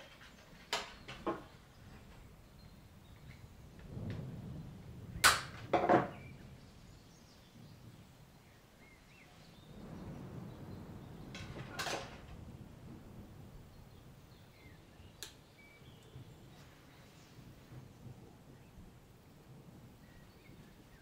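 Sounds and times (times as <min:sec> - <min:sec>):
sharp snaps of branches: 0:05.2 - 0:05.7, 0:15.2 - 0:15.4.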